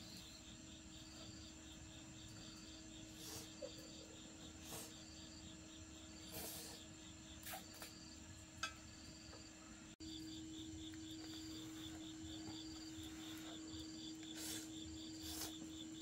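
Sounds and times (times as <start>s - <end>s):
crickets chirping: 0.0s - 16.0s
faint low hum: 0.0s - 16.0s
breathy puff: 3.1s - 3.6s, 4.5s - 5.1s, 6.2s - 8.0s, 14.3s - 15.7s.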